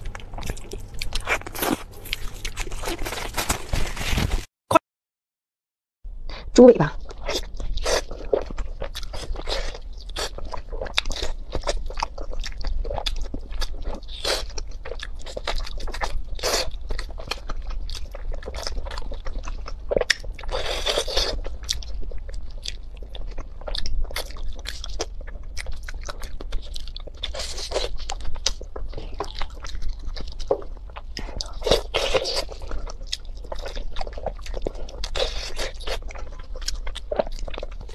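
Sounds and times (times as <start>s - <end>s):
biting and wet chewing: 0.0s - 4.4s, 7.0s - 37.9s.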